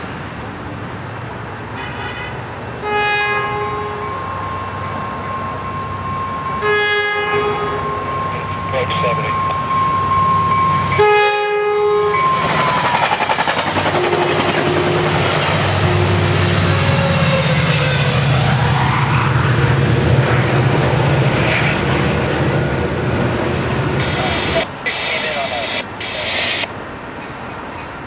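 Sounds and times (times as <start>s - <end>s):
train cars rushing past: 0.0s - 28.0s
train horn: 1.8s - 4.3s, 6.6s - 8.1s, 11.0s - 12.8s, 13.9s - 18.2s
diesel locomotive rumble: 2.5s - 28.0s.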